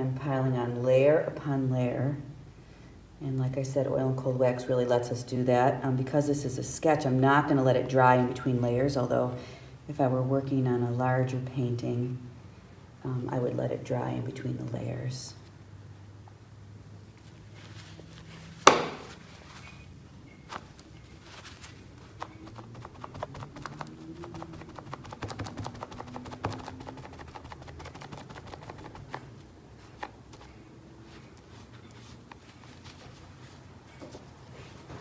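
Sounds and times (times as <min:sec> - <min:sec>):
sharp tap: 0:18.7 - 0:19.0
paper towel scratching on paper: 0:21.1 - 0:33.6.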